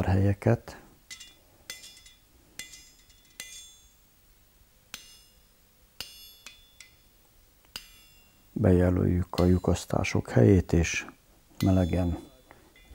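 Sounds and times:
hammer striking steel punch: 0:04.9 - 0:07.0, 0:11.6 - 0:12.9.

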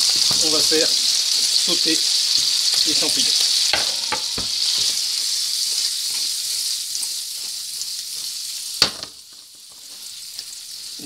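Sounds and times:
mushrooms sizzling in a frying pan: 0:00.0 - 0:11.0.

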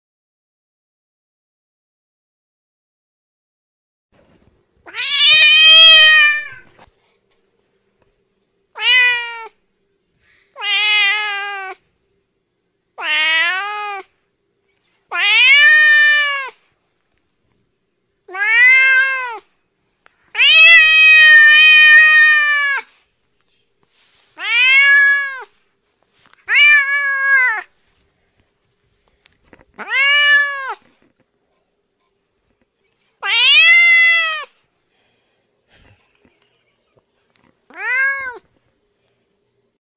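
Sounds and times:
cat meowing: 0:04.8 - 0:06.7, 0:08.8 - 0:09.6, 0:10.6 - 0:11.8, 0:13.0 - 0:14.1, 0:15.1 - 0:16.6, 0:18.3 - 0:19.5, 0:20.4 - 0:22.9, 0:24.4 - 0:25.5, 0:26.4 - 0:27.7, 0:29.8 - 0:30.9, 0:33.2 - 0:34.5, 0:37.7 - 0:38.5.

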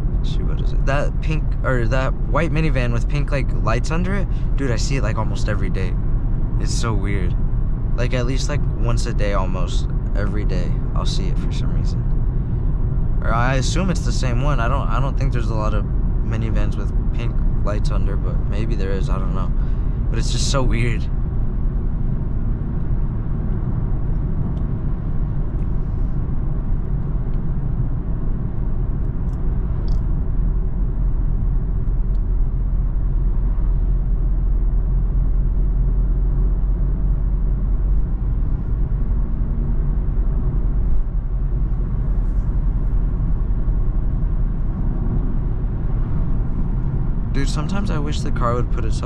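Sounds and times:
faint engine hum: 0:00.0 - 0:49.0
tyre and road drone: 0:00.0 - 0:49.0.

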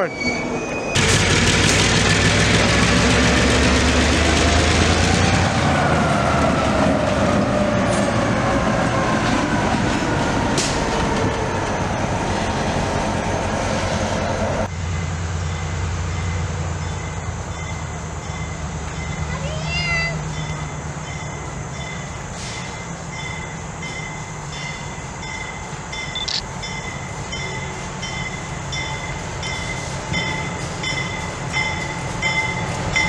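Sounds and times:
diesel locomotive engine rumble: 0:00.0 - 0:33.0
rail noise: 0:00.0 - 0:33.0
low diesel hum: 0:01.0 - 0:05.6.

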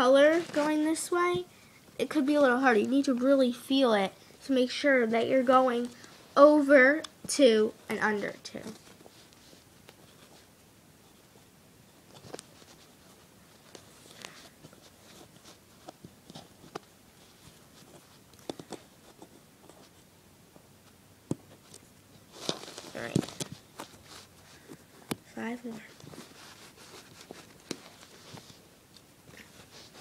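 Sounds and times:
fabric loops rustling: 0:00.0 - 0:01.4, 0:12.0 - 0:30.0.

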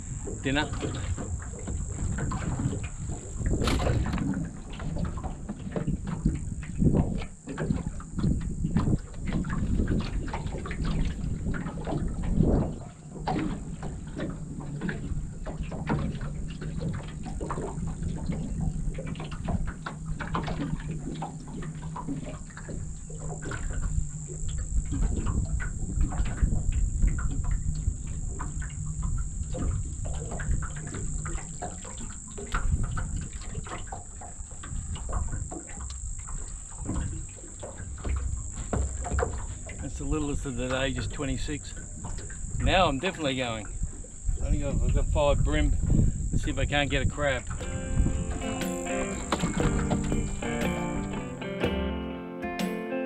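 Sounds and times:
low steady hum: 0:00.0 - 0:19.0
wind buffeting microphone: 0:00.0 - 0:51.2
waves slapping against hull: 0:00.0 - 0:51.9
high-pitched insect drone: 0:45.8 - 0:50.4
irregular knocks: 0:47.6 - 0:52.7.

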